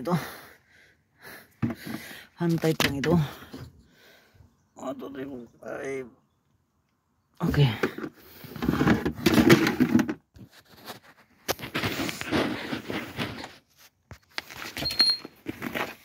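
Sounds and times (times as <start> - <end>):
brief high squeak: 14.8 - 15.3.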